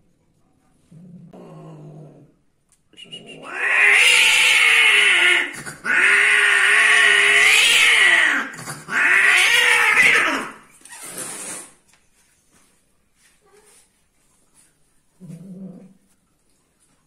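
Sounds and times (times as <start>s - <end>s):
cat yowling: 3.4s - 10.6s.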